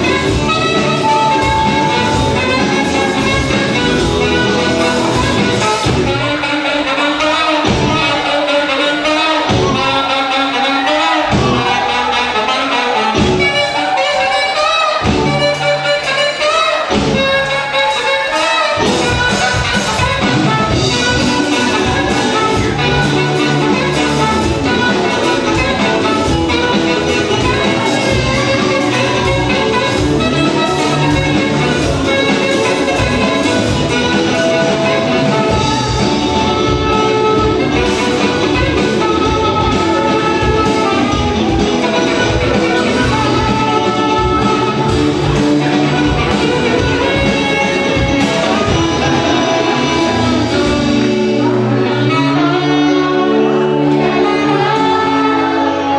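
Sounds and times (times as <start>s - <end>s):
live band playing loud music: 0.0s - 55.9s.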